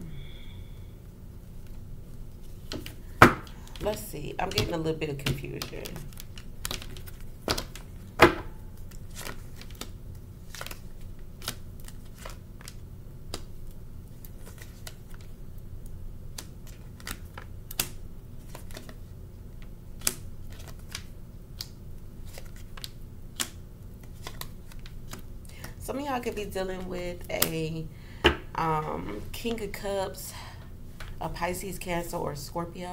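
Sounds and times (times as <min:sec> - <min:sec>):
steady low hum: 0:00.0 - 0:32.9
cards being shuffled: 0:01.6 - 0:08.0, 0:08.8 - 0:15.4, 0:16.3 - 0:19.0, 0:20.0 - 0:25.8.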